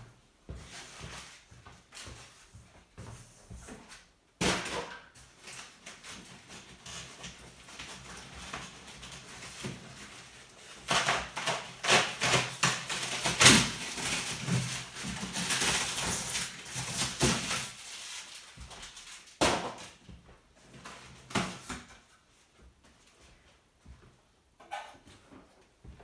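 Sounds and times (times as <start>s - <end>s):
polystyrene and cardboard rustling: 0.6s - 22.1s.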